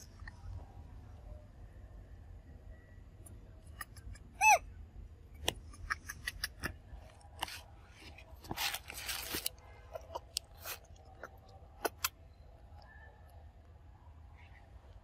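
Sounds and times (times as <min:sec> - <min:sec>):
rustling: 0:07.4 - 0:10.9.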